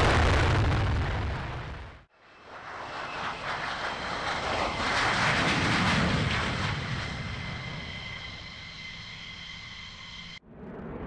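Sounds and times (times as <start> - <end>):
jet passing low: 0.0 - 11.0
jet engine high whine: 1.6 - 11.0.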